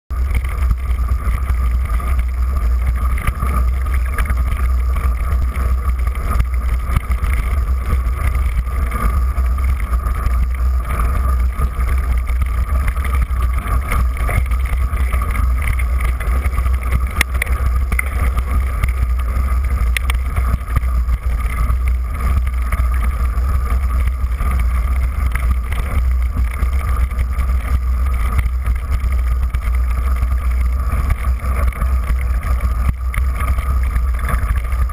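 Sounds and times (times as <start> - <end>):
wind and trail vibration rumble: 0.1 - 34.9
faint clicks: 19.6 - 23.2.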